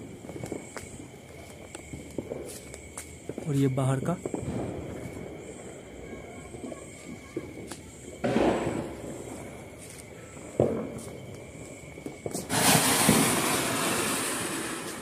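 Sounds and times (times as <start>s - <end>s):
firecracker crack: 0.0s - 15.0s
firework rushing hiss of sparks: 1.8s - 5.9s, 6.6s - 15.0s
firecracker bang: 4.2s - 5.6s, 6.6s - 9.6s, 10.4s - 11.2s, 12.1s - 15.0s.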